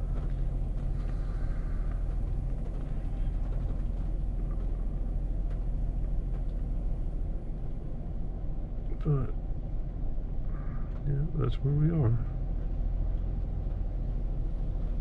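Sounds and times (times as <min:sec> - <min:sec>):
truck engine idling: 0:00.0 - 0:07.8.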